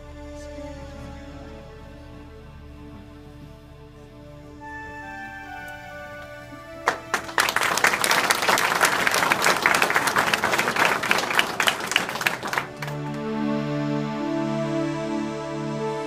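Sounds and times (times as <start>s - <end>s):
soft instrumental music: 0.0s - 8.8s, 12.4s - 16.0s
audience clapping: 6.2s - 13.4s.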